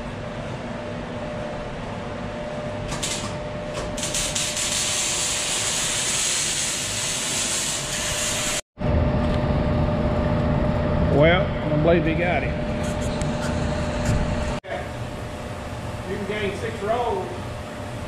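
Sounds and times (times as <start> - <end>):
arc welding hiss: 4.0 - 8.6.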